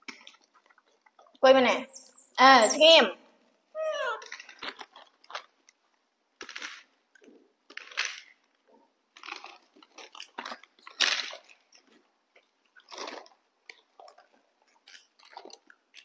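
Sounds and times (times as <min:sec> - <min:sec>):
plastic bags crinkling: 0:04.2 - 0:05.8, 0:06.4 - 0:16.0.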